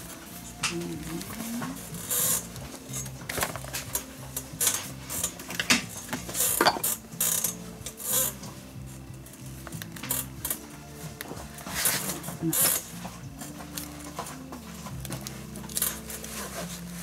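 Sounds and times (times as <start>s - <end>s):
lace rustling and scraping: 0.0s - 17.0s
quiet background music: 0.0s - 17.0s
metal tools clicking and clinking: 1.9s - 8.3s.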